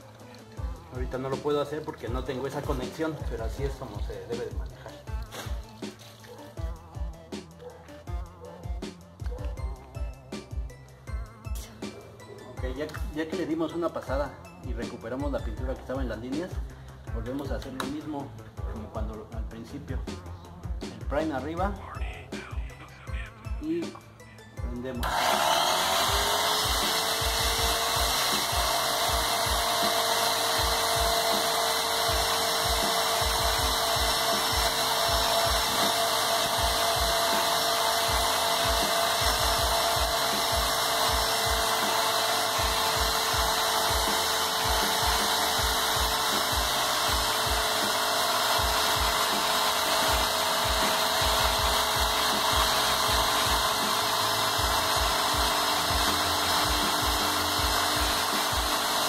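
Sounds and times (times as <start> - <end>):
low knocking pump strokes: 25.0 - 59.0
paint sprayer motor whine: 25.0 - 59.0.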